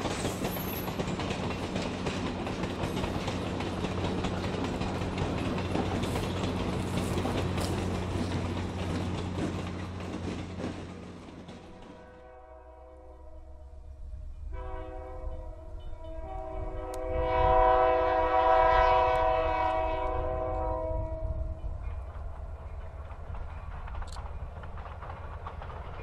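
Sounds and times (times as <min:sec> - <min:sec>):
passenger train passing: 0:00.0 - 0:26.0
locomotive air horn blasts: 0:11.9 - 0:13.7, 0:14.5 - 0:21.4.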